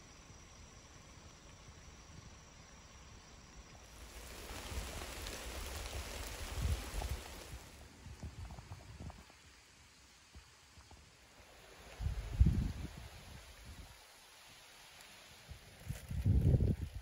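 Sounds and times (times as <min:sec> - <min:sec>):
rain on foliage: 0:03.9 - 0:07.9, 0:11.4 - 0:17.0.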